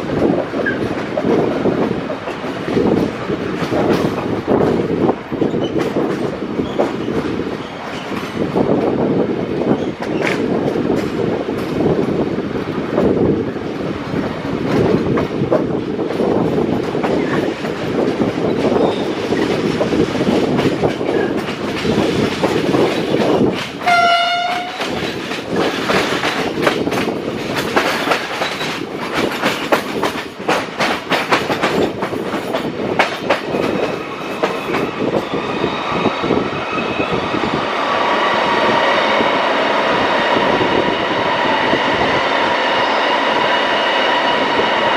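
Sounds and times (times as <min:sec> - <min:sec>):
train rumbling: 0:00.0 - 0:44.9
train whine in tunnel: 0:00.0 - 0:44.9
wheels clicking over rail joints: 0:14.6 - 0:35.2
train horn blast: 0:23.8 - 0:24.8.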